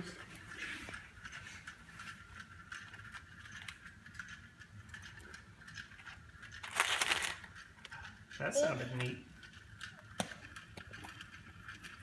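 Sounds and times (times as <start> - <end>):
plastic egg rattling with coins: 2.1 - 8.4.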